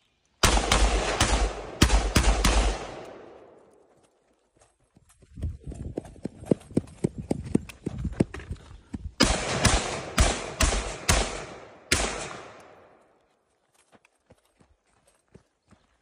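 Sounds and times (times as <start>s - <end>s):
rifle shots: 0.4s - 3.6s, 9.2s - 13.0s.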